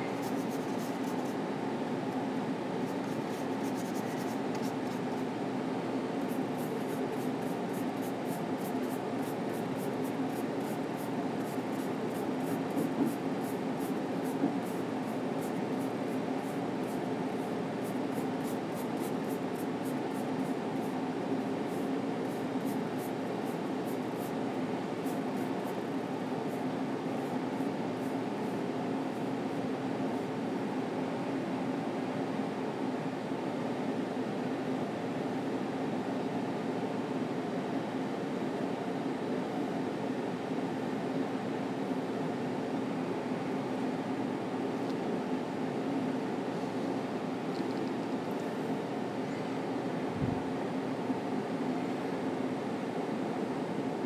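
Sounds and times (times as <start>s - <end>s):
low room hum: 0.0s - 54.0s
paint brush scratching: 0.2s - 1.4s, 2.8s - 5.3s, 6.2s - 21.0s, 21.6s - 24.4s, 25.0s - 25.8s.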